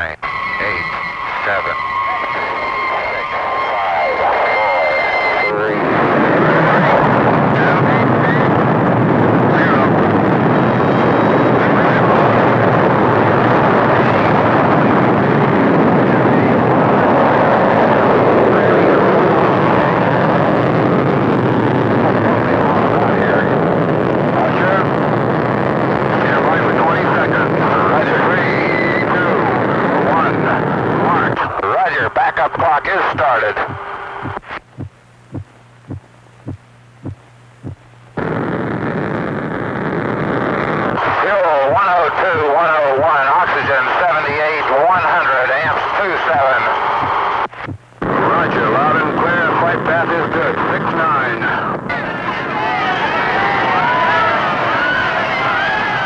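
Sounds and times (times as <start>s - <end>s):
rocket engines roaring: 0.0s - 34.7s, 38.2s - 56.0s
low hum: 0.0s - 49.3s
heartbeat thumping: 33.6s - 37.9s, 47.0s - 47.9s.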